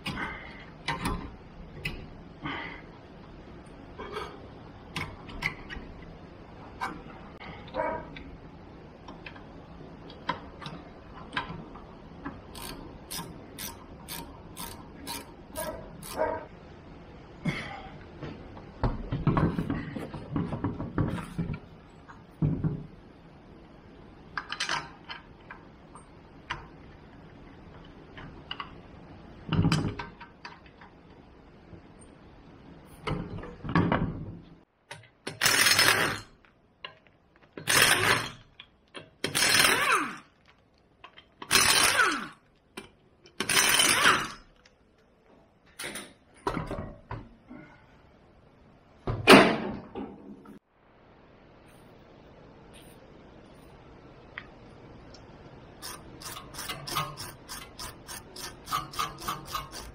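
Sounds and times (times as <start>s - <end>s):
pneumatic impact wrench: 35.3s - 36.3s, 37.6s - 38.4s, 39.2s - 40.3s, 41.5s - 42.4s, 43.4s - 44.4s, 55.8s - 59.9s.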